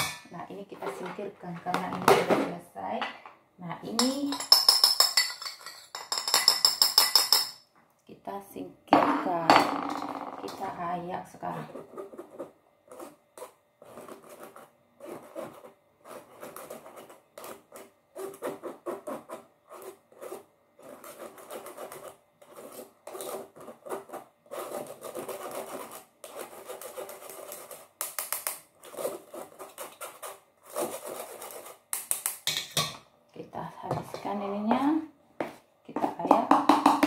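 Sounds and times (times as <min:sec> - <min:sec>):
metal spoon scraping flour through sieve: 0:13.8 - 0:27.8.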